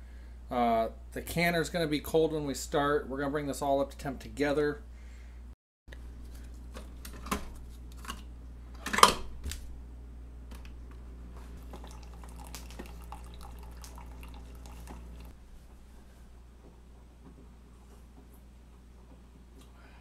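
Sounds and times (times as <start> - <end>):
coffee maker humming: 11.6 - 15.3
coffee trickling into mug: 11.6 - 15.3.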